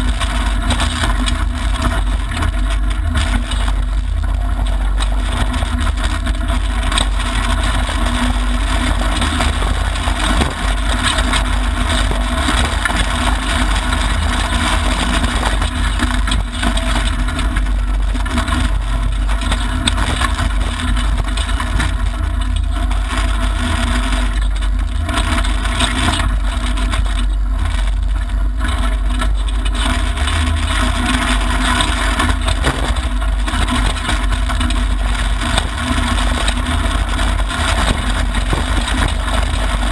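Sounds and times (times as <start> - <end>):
car engine roaring: 0.0 - 22.0, 30.2 - 39.9
tyre and gravel road noise: 0.0 - 39.9.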